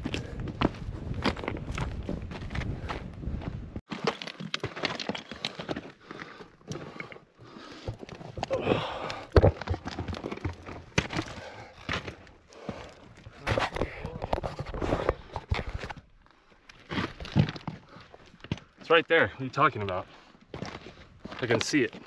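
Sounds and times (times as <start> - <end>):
footsteps on gravel: 0.0 - 6.5, 20.0 - 22.0.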